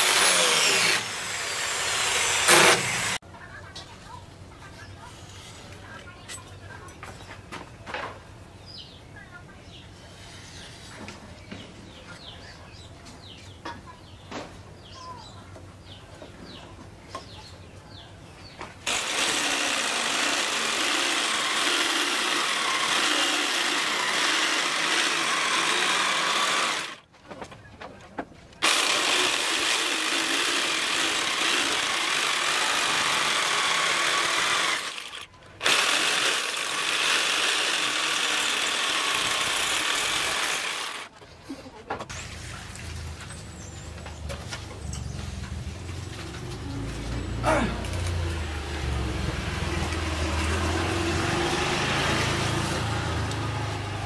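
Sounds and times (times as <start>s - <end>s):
jigsaw cutting wood: 0.0s - 3.2s, 18.9s - 27.0s, 28.6s - 41.1s.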